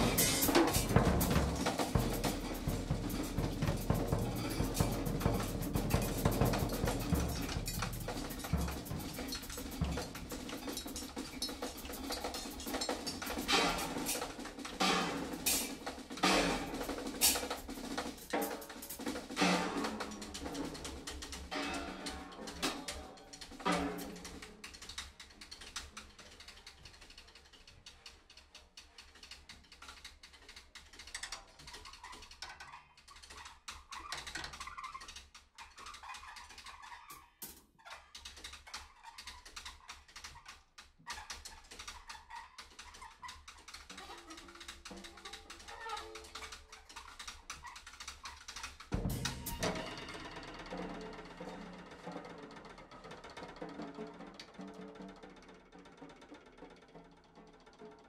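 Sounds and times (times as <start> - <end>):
drum kit playing: 0.0 - 24.7, 48.9 - 52.4.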